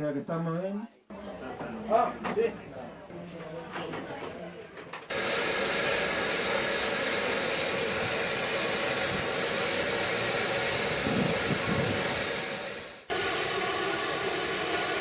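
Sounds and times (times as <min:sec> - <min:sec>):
steam hissing from locomotive: 0:05.1 - 0:15.0.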